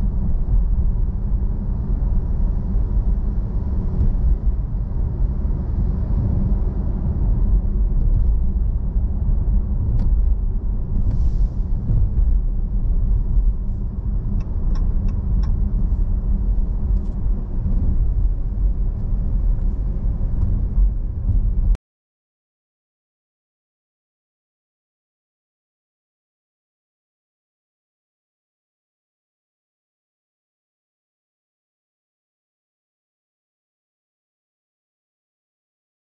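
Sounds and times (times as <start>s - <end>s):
car driving low rumble: 0.0s - 21.8s.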